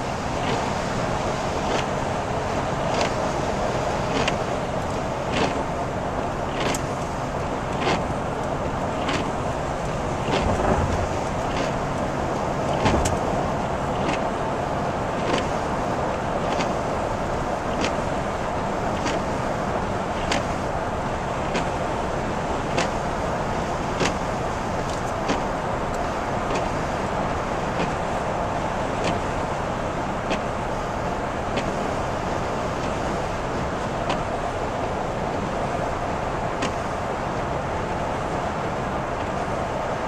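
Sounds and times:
road and tyre noise in car: 0:00.0 - 0:40.0
windshield wipers clicking: 0:02.8 - 0:03.2, 0:04.1 - 0:14.4, 0:15.1 - 0:15.6, 0:16.4 - 0:16.8, 0:17.6 - 0:18.2, 0:19.0 - 0:19.4, 0:20.2 - 0:20.6, 0:21.3 - 0:21.9, 0:22.7 - 0:23.1, 0:23.8 - 0:26.9, 0:27.6 - 0:28.0, 0:29.0 - 0:29.4, 0:30.3 - 0:30.9, 0:31.5 - 0:31.9, 0:34.0 - 0:34.4, 0:36.6 - 0:36.9.

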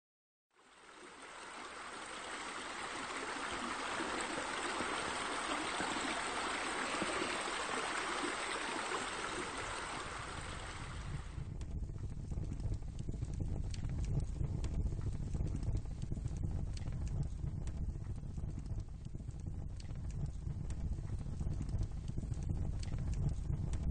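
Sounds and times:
running water: 0:00.5 - 0:11.4
low rumble: 0:09.3 - 0:23.9.

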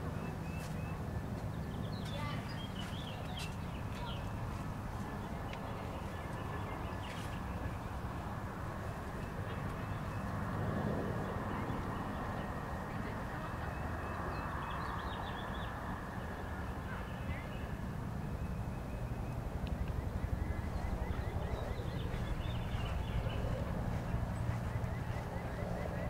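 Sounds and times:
faint bird calls: 0:16.4 - 0:26.0.

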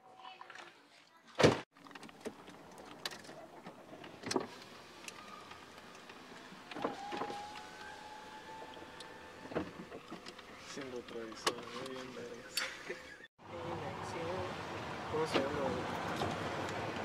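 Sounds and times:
power window motor whining: 0:04.6 - 0:10.5.

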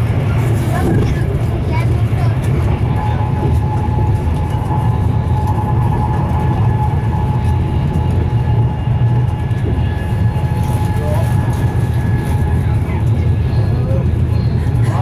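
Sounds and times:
train wheels rumbling on track: 0:00.0 - 0:15.0.

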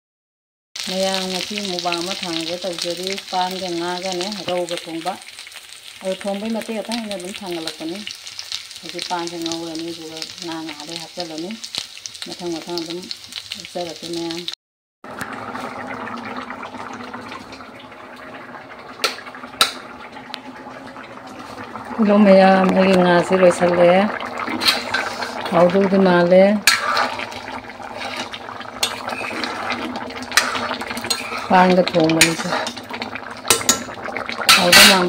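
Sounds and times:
oil sizzling in a wok: 0:00.8 - 0:20.1, 0:21.0 - 0:35.0.

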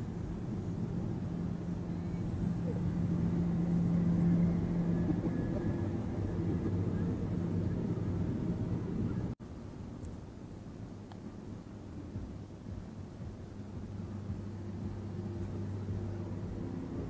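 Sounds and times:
tractor engine droning: 0:00.0 - 0:09.4
road and wind noise: 0:00.0 - 0:17.0.

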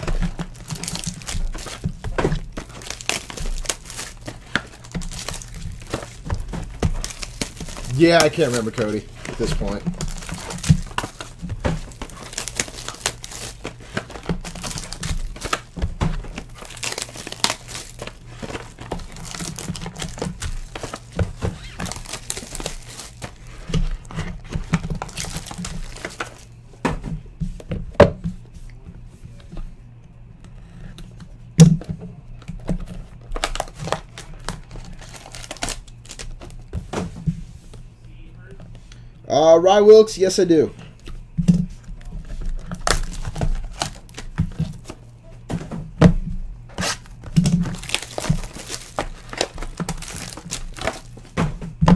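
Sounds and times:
foil wrappers crinkling and tearing: 0:00.0 - 0:26.6, 0:32.3 - 0:36.8, 0:40.5 - 0:45.2, 0:46.6 - 0:51.9.

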